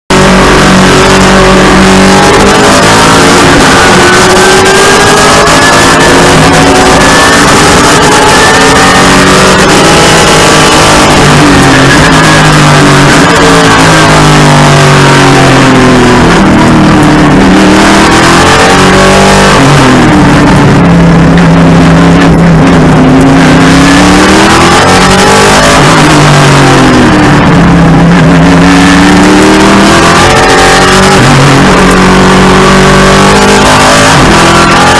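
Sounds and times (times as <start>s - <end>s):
race car engine revving: 0.1s - 34.9s.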